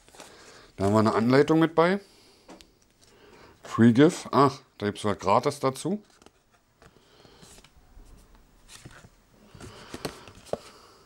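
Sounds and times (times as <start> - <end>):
paper card rustling: 0.0 - 1.3, 6.0 - 10.7.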